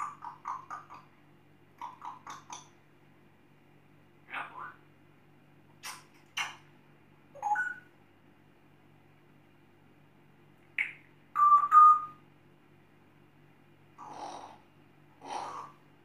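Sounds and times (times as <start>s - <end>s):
parrot whistled beeps: 7.4s - 7.9s, 10.8s - 12.2s.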